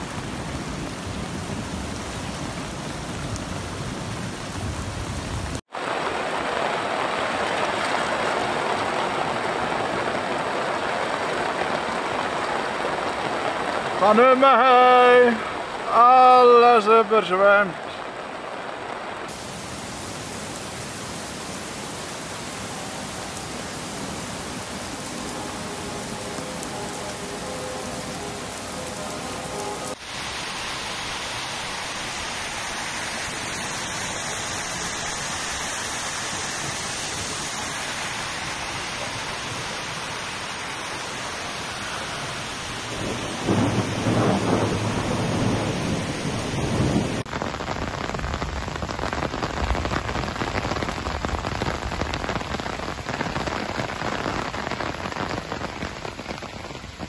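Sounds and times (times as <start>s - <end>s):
heavy rain pouring: 0.0s - 57.0s
thunder rumbling: 41.9s - 57.0s.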